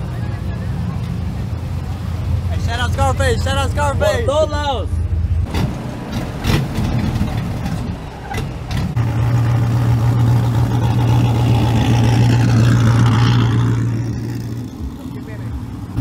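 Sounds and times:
truck engine droning: 0:00.0 - 0:16.0.

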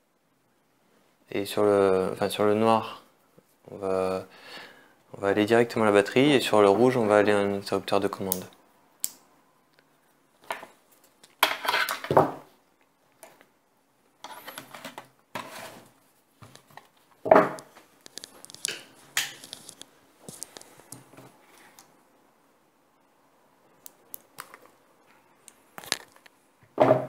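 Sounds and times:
small parts handled on table: 0:10.4 - 0:12.4, 0:14.2 - 0:21.9.

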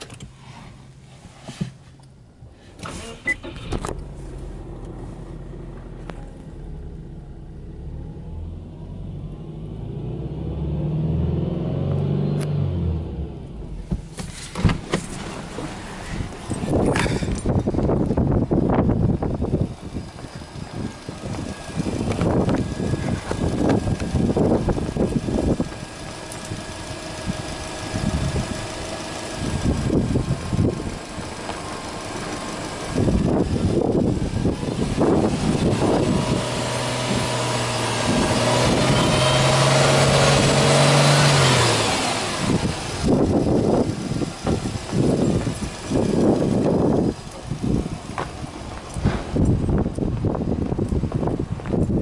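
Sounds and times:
car engine revving: 0:03.0 - 0:49.9.

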